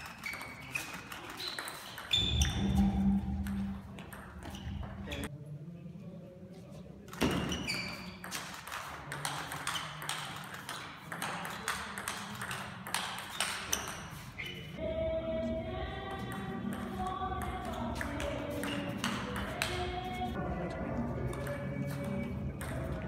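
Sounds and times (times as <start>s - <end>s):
background music: 14.8s - 23.0s.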